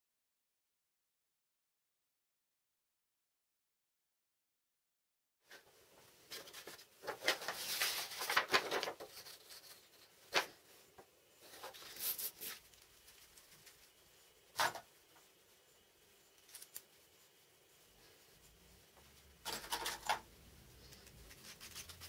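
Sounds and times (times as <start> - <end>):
paper sheets rustling: 6.2 - 10.7, 11.4 - 14.9.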